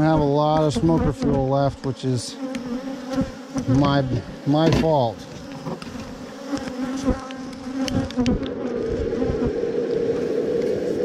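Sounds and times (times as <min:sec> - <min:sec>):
bees buzzing: 0:00.0 - 0:11.0
butane torch burning: 0:05.2 - 0:11.0.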